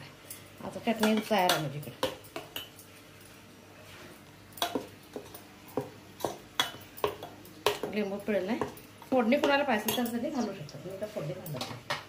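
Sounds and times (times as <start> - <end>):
utensils clinking on steel vessels: 0.2 - 3.4, 4.5 - 10.6.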